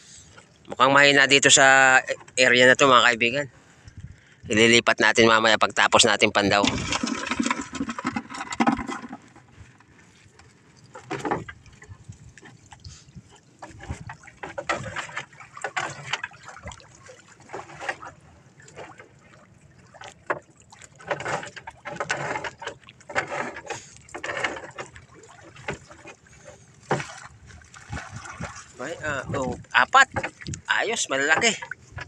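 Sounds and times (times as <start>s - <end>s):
water splashing off net traps: 6.5s - 9.4s, 13.9s - 30.5s.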